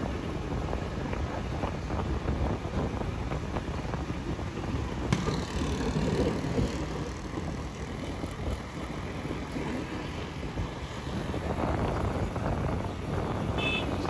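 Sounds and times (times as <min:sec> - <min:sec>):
moving vehicle rumble: 0:00.0 - 0:14.0
street traffic: 0:00.0 - 0:14.0
wind buffeting microphone: 0:00.0 - 0:14.0.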